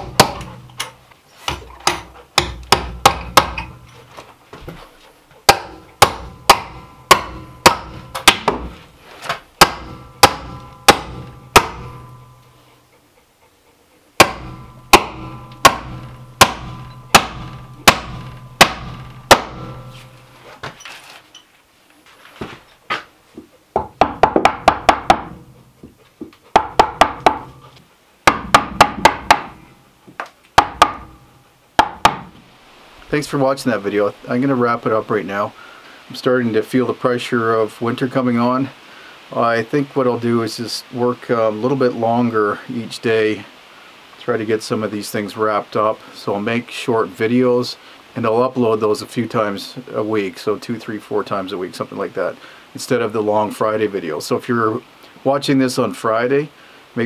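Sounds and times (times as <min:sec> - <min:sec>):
hammer driving nails into wood: 0:00.0 - 0:03.8, 0:05.5 - 0:12.2, 0:14.2 - 0:19.9, 0:23.8 - 0:25.4, 0:28.3 - 0:29.6, 0:30.6 - 0:31.1, 0:31.8 - 0:32.3.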